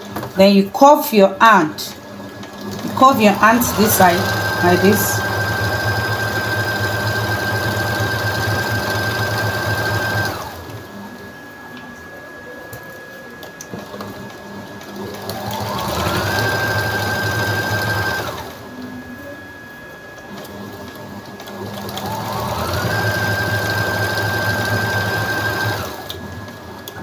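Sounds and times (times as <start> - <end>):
sewing machine stitching: 2.4 - 10.8, 14.8 - 18.6, 20.4 - 26.5.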